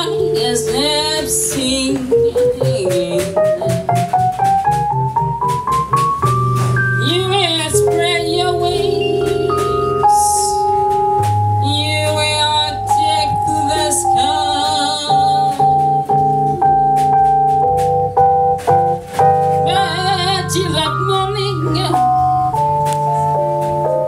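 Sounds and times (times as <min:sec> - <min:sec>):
woman singing with vibrato: 0:00.0 - 0:03.6, 0:07.0 - 0:10.7, 0:11.6 - 0:15.9, 0:19.7 - 0:22.4
drum hits: 0:00.0 - 0:24.0
keyboard chords: 0:00.0 - 0:24.0.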